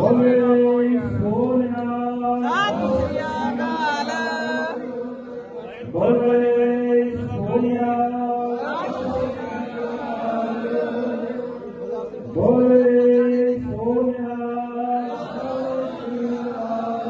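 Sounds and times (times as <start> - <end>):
voices chanting: 2.4 - 5.7, 8.5 - 12.6, 15.0 - 17.0.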